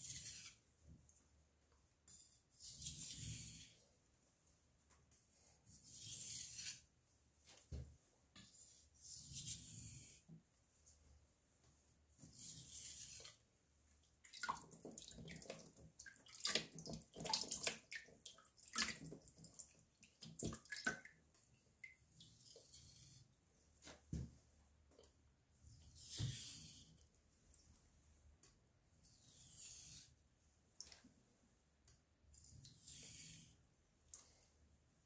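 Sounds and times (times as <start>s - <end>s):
water splashing: 14.2s - 21.2s.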